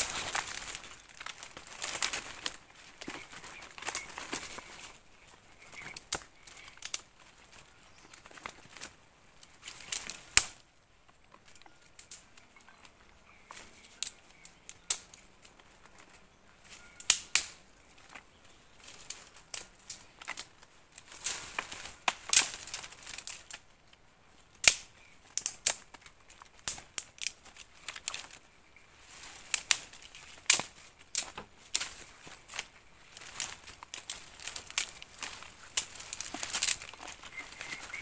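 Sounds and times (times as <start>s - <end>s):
sticks snapping: 0.0s - 4.8s, 5.8s - 7.1s, 8.3s - 10.6s, 11.6s - 12.5s, 13.5s - 15.6s, 17.0s - 18.2s, 18.9s - 24.0s, 24.6s - 28.5s, 29.3s - 38.0s
twigs and leaves rustling: 0.0s - 38.0s.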